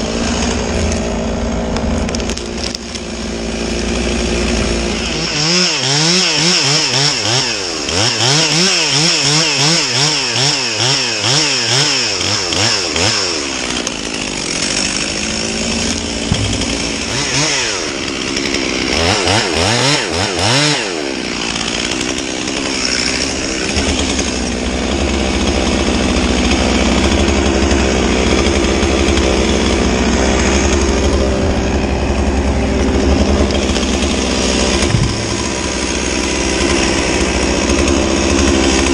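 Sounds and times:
engine running with low hum: 0.0s - 6.9s, 14.6s - 20.1s, 23.2s - 38.9s
chainsaw cutting wood: 0.0s - 38.9s.

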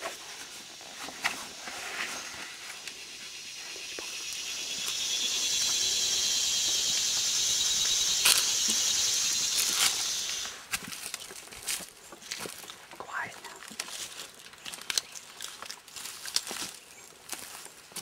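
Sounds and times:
cicadas buzzing: 0.0s - 10.7s.

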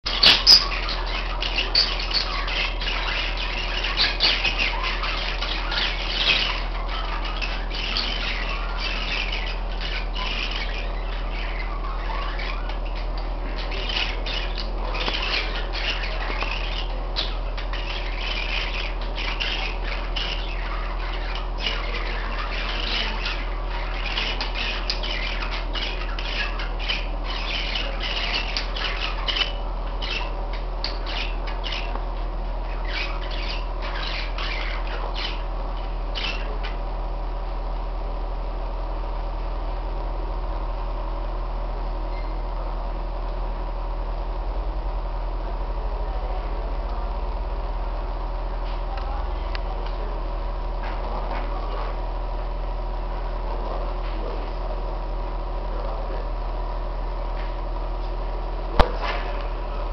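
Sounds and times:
parakeets squawking and chirping: 0.0s - 37.0s, 42.1s - 42.6s.

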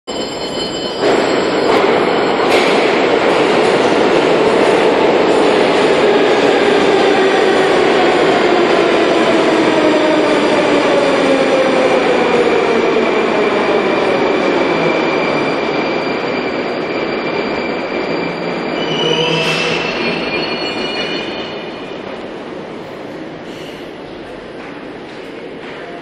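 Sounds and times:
metro train running with whine: 0.1s - 26.0s
high wheel squeal: 14.5s - 21.9s.

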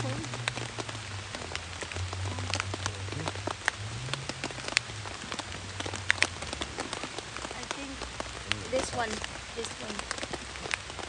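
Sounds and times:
raindrops tapping on tent fabric: 0.0s - 11.0s.

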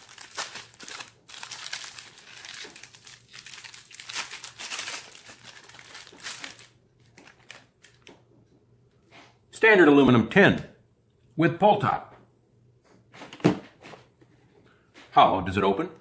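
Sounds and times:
plastic sleeve crinkling and tearing: 0.0s - 8.2s.

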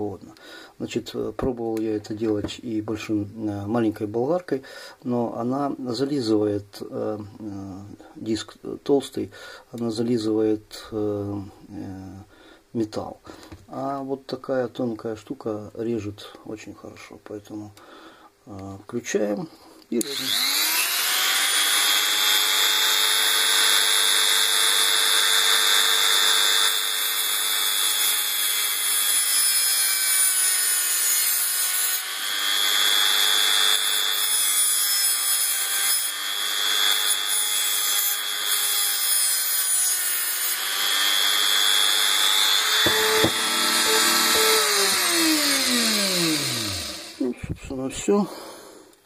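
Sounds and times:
rotary tool grinding metal: 20.0s - 47.3s
rotary tool spinning down: 42.6s - 47.2s.

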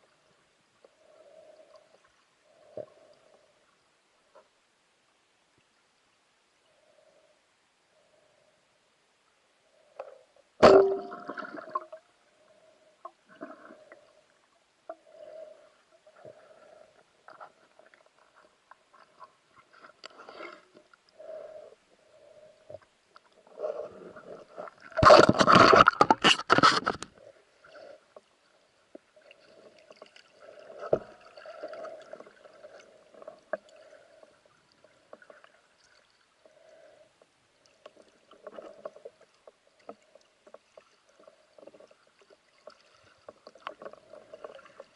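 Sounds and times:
splashing and bubbling: 10.6s - 12.1s, 24.2s - 26.8s.

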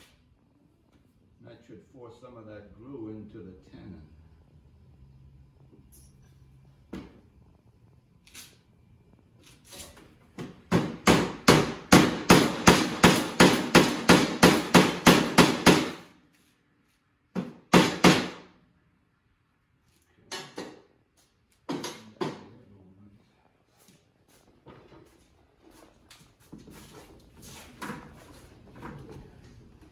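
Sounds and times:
hammer striking wooden dowel: 10.4s - 16.0s, 17.4s - 18.4s.

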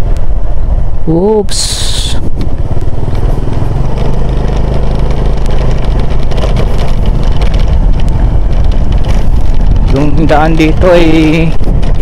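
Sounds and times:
motorcycle engine running: 0.0s - 12.0s
faint knocks from rough road: 2.4s - 10.8s.

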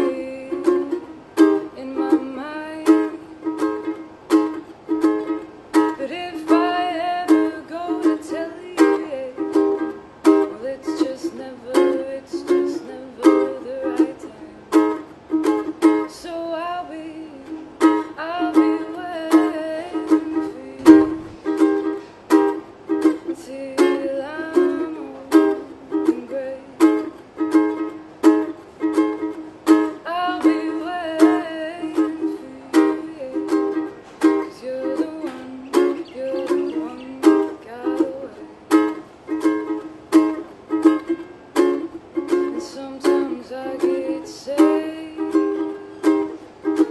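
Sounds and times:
woman singing: 0.0s - 4.0s, 5.8s - 22.0s, 23.0s - 27.7s, 29.7s - 40.4s, 41.0s - 46.9s
ukulele strumming: 0.0s - 46.9s.

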